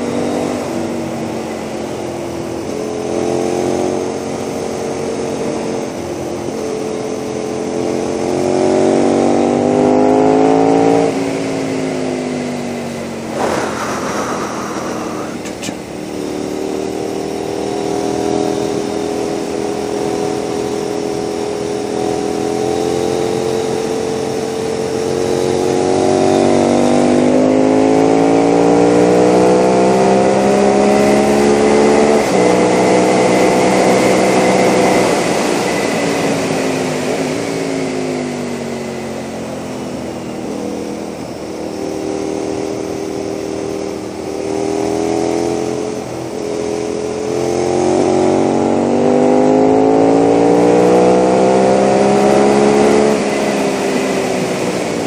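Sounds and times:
motorcycle engine revving: 0:00.0 - 0:39.4, 0:40.0 - 0:55.0
wind rush: 0:13.2 - 0:16.2.

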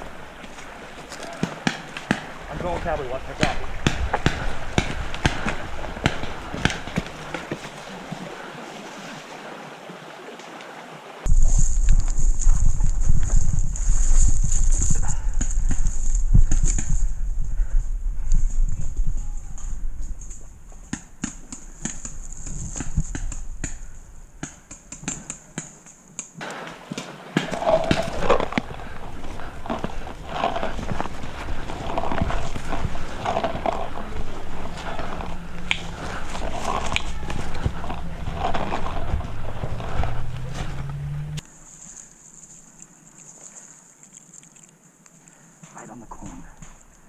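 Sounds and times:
creek rushing: 0:00.0 - 0:11.3, 0:26.4 - 0:41.4
low wind rumble: 0:02.0 - 0:08.6, 0:11.2 - 0:24.4, 0:27.6 - 0:41.4.

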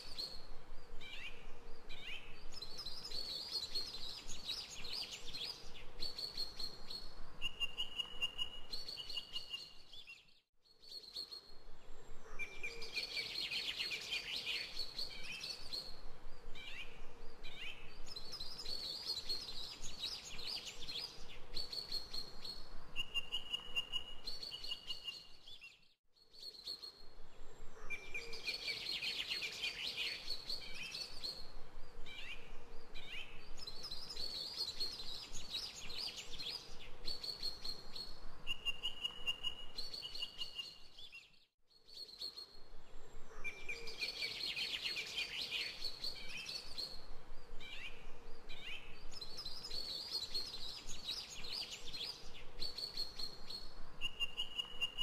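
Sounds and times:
birds chirping and singing: 0:43.2 - 0:47.0.

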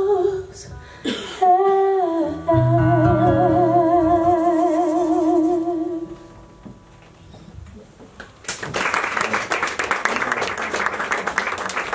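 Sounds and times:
audience applause: 0:08.4 - 0:11.9.

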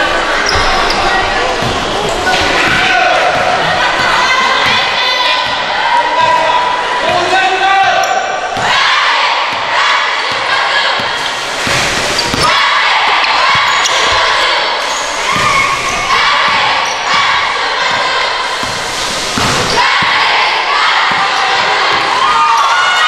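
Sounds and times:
mix of voices: 0:00.0 - 0:23.0
basketball bouncing on gym floor: 0:09.5 - 0:12.6, 0:16.4 - 0:20.2.

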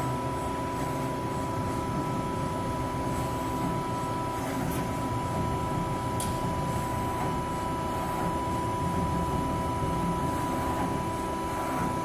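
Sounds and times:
machinery hum: 0:00.0 - 0:12.0.

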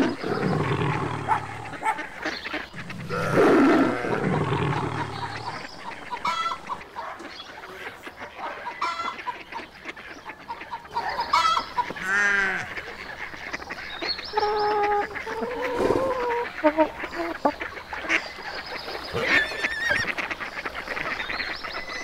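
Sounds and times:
tiger yawning growl: 0:00.0 - 0:06.8
fowl calls: 0:00.0 - 0:22.0.

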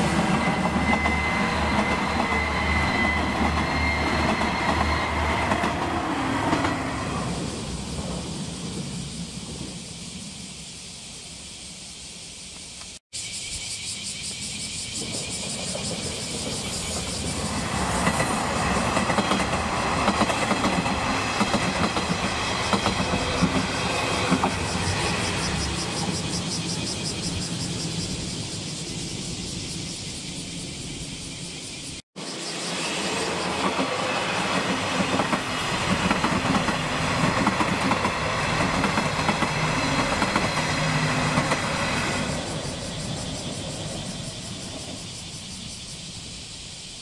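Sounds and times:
diesel railcar passing: 0:00.0 - 0:11.8, 0:14.3 - 0:47.0
train wheels clicking over rail joints: 0:15.0 - 0:26.6, 0:33.4 - 0:45.6.

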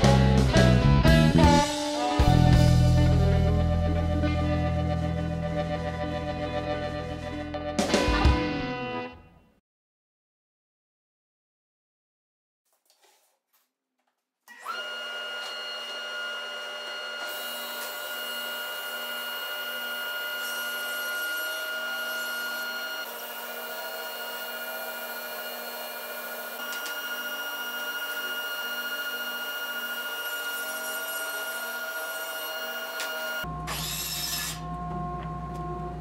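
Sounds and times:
saw blade cutting wood: 0:14.5 - 0:34.7
table saw motor whining: 0:14.5 - 0:36.0.

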